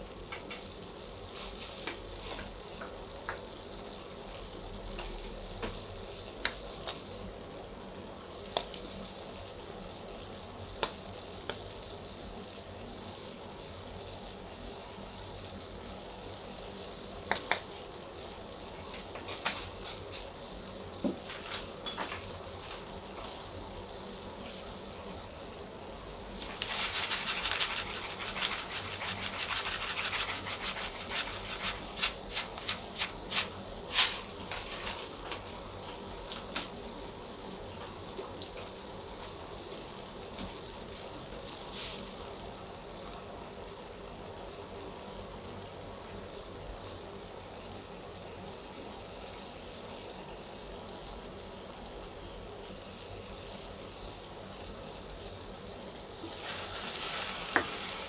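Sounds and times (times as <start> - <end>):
crackling pops of frying: 0.0 - 12.0, 17.0 - 25.1, 26.3 - 42.2, 56.1 - 58.0
chicken sizzling in a pot: 0.0 - 58.0.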